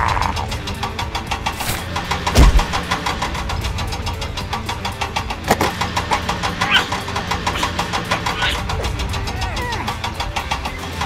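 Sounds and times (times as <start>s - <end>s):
engine chugging: 0.0s - 11.0s
sharp knock: 1.6s - 2.9s.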